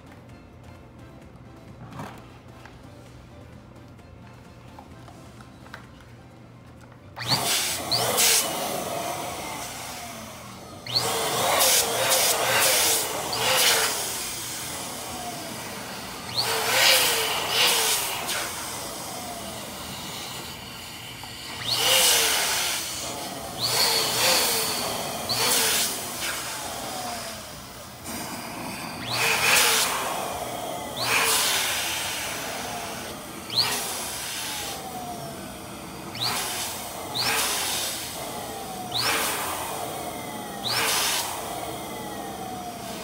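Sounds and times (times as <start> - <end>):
electric balloon pump blowing: 7.2 - 43.0.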